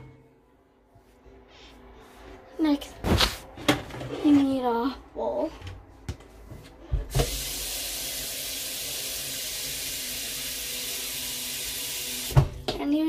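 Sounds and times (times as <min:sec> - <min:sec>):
kitchen tap running: 0:07.1 - 0:12.5.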